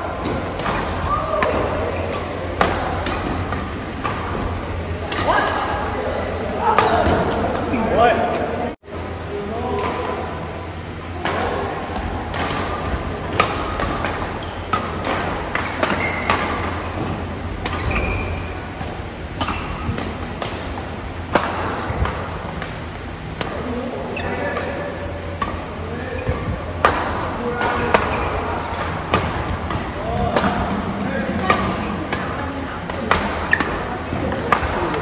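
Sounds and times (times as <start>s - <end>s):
steady low hum: 0.0s - 35.0s
rackets striking shuttlecock: 12.3s - 23.8s, 32.9s - 35.0s.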